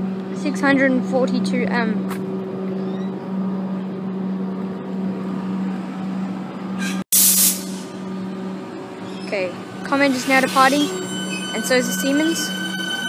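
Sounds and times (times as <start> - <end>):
electric train hum: 0.0 - 13.0
air brakes hissing: 6.8 - 8.0, 9.9 - 12.5.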